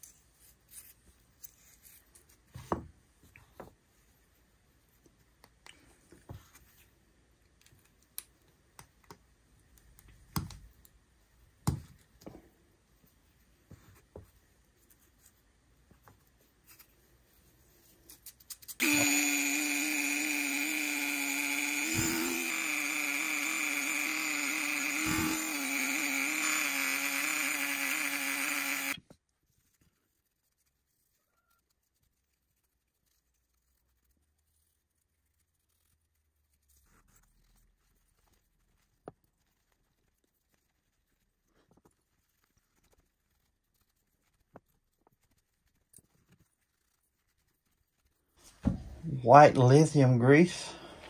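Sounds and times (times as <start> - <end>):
rotary tool whining: 18.8 - 29.0.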